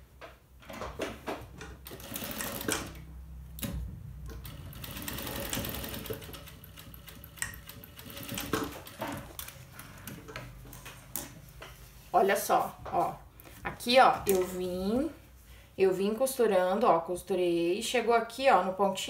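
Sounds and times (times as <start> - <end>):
sewing machine stitching: 1.6 - 9.6.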